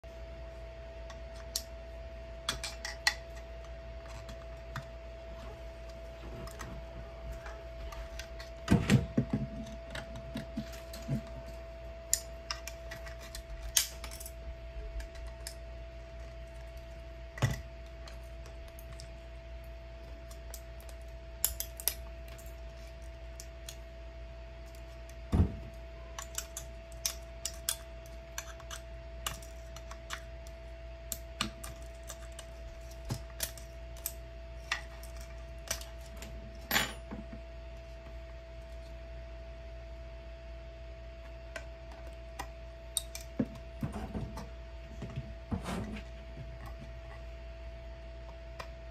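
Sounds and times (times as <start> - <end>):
steady hum: 0.0 - 48.9
plastic parts clicking and snapping: 2.4 - 4.9, 12.1 - 14.3, 20.1 - 22.5, 24.6 - 36.3.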